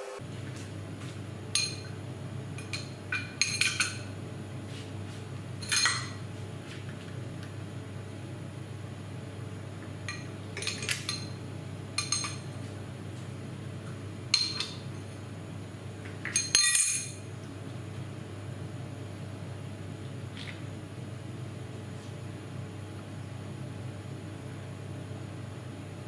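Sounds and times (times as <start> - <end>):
steady low hum: 0.0 - 26.0
metal clamps clinking: 10.1 - 11.3, 16.3 - 17.2.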